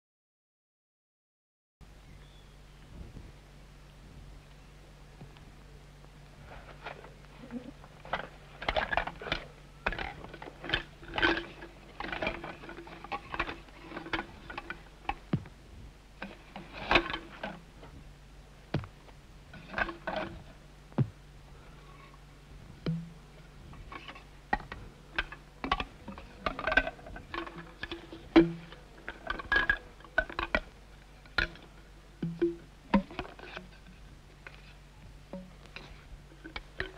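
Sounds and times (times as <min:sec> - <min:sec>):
bamboo knocks and taps: 0:15.1 - 0:15.6, 0:22.8 - 0:23.1.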